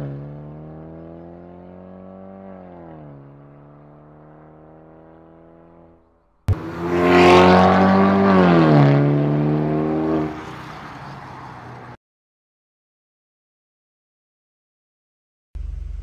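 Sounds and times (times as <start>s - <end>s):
car engine exhaust note: 15.6s - 16.0s.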